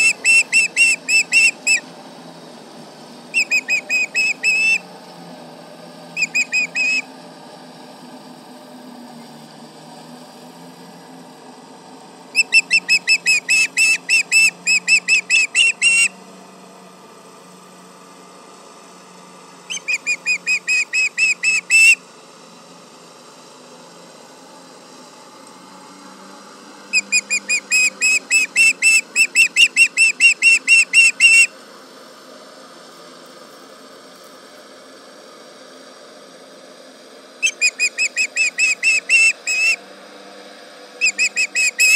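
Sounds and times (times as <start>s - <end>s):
ospreys whistled alarm calls: 0.0s - 1.9s, 3.3s - 4.8s, 6.2s - 7.1s, 12.4s - 16.1s, 19.7s - 22.0s, 27.0s - 31.5s, 37.4s - 39.8s, 41.0s - 41.9s.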